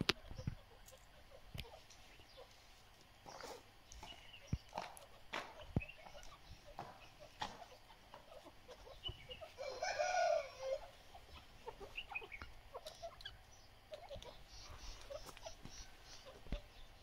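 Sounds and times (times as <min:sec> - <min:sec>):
faint chips and ticks: 0:00.0 - 0:17.0
francolin call: 0:08.8 - 0:11.0.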